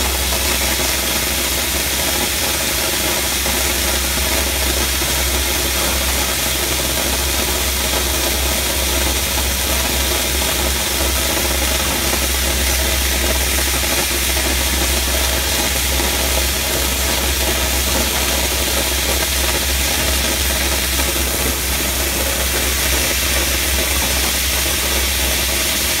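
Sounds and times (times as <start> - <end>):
blasting nozzle hissing: 11.0 - 26.0.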